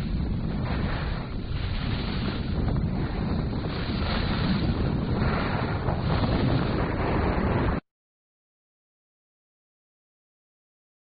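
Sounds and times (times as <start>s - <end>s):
wind buffeting microphone: 0.0s - 7.8s.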